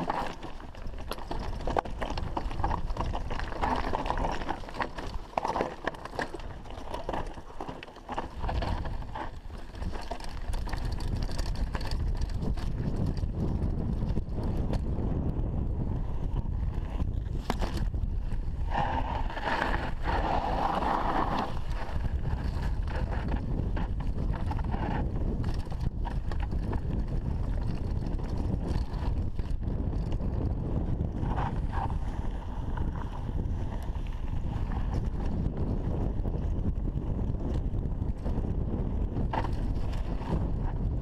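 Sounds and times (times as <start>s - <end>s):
bike rattling over stones: 0.0s - 41.0s
wind rushing over microphone: 8.3s - 41.0s.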